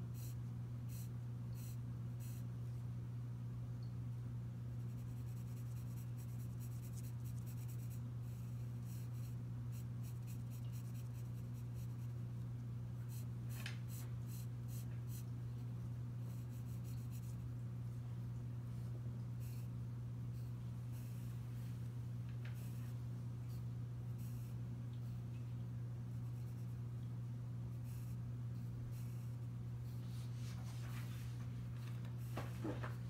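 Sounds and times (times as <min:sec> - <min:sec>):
pencil scratching on paper: 0:04.8 - 0:12.2.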